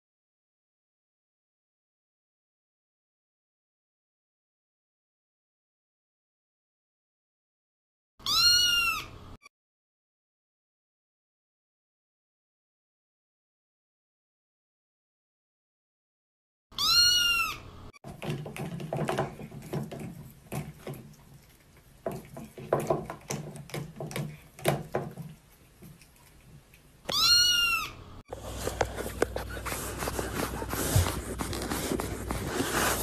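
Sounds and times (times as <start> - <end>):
cat meowing: 8.2 - 9.2, 16.8 - 17.7, 27.1 - 28.0
rustling and handling noises: 28.3 - 33.0.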